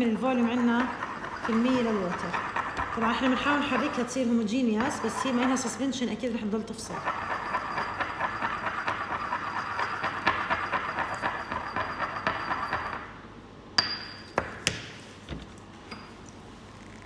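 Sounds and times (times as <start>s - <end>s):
pestle grinding in ceramic mortar: 0.0s - 5.9s, 6.8s - 13.2s.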